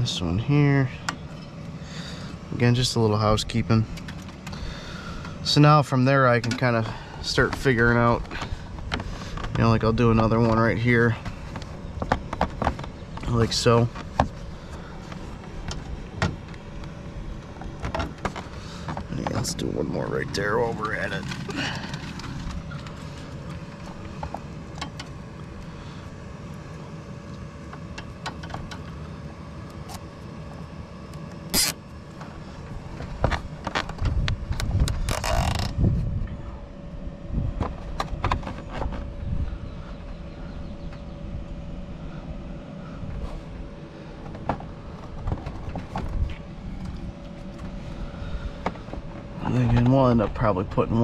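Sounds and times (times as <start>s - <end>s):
cable tie zip: 31.5s - 31.8s, 35.0s - 35.7s.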